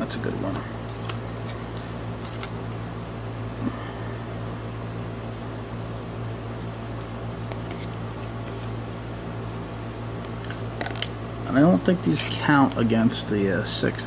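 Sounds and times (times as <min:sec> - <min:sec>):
low room hum: 0:00.0 - 0:14.0
card handling clicks: 0:00.4 - 0:02.6.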